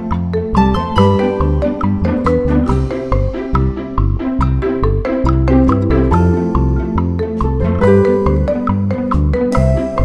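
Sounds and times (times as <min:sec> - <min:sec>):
bright struck notes: 0:00.4 - 0:10.0.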